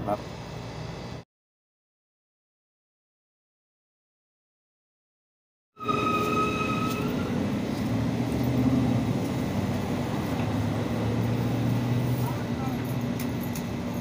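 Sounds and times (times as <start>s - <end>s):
high whistle-like tone: 5.8s - 7.5s
vehicle engine running: 7.2s - 14.0s.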